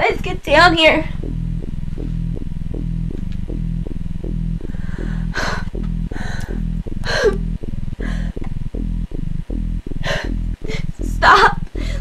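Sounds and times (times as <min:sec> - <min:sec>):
low throbbing drone hum: 0:00.0 - 0:12.0
breathy rasps: 0:04.6 - 0:08.6, 0:09.9 - 0:11.1, 0:11.7 - 0:12.0.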